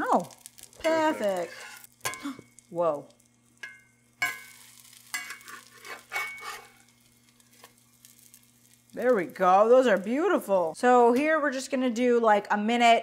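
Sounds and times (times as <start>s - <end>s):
pancakes sizzling in butter: 0.0s - 10.8s
metal spatula scraping a pan: 0.8s - 2.2s, 3.6s - 6.9s.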